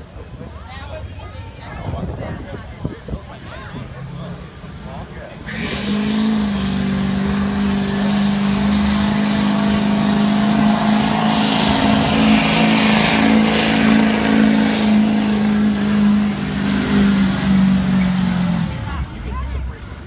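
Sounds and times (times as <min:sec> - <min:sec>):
truck engine high drone: 0:03.0 - 0:20.0
hissing rush: 0:05.5 - 0:18.9.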